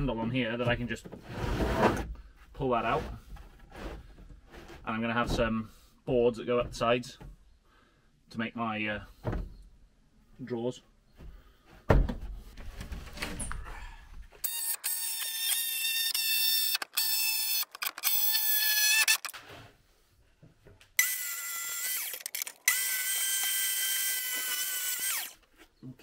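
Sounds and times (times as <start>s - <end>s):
cordless drill whine: 14.4s - 19.4s, 21.0s - 25.4s.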